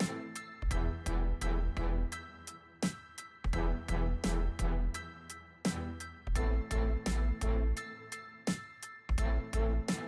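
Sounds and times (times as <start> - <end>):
background music with steady beat: 0.0 - 10.0.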